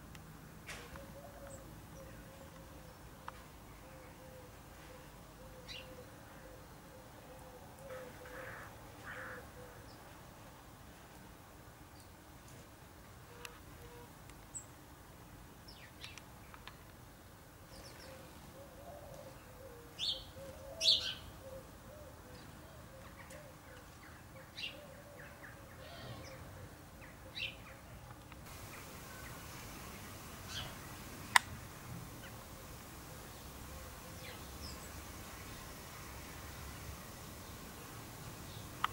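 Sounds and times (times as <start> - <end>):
sparrows chirping: 5.5 - 6.4, 20.0 - 21.4, 28.5 - 38.9.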